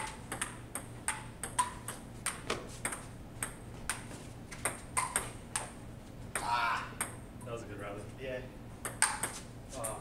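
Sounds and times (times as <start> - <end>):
ping-pong ball clicking: 0.0 - 4.0, 4.6 - 7.2, 8.8 - 10.0.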